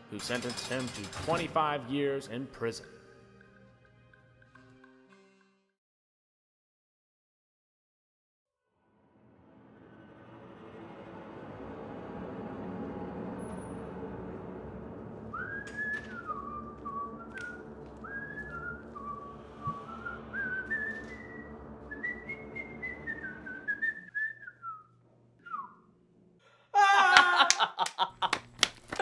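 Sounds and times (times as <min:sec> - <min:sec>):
person whistling a tune: 0:15.3 - 0:25.8.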